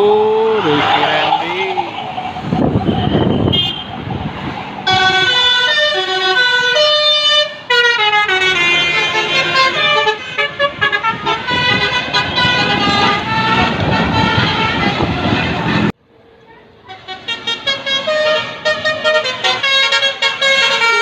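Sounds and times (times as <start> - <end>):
passing bus: 0.0 - 21.0
traffic: 0.0 - 21.0
musical bus horn melody: 4.8 - 16.0, 16.9 - 21.0.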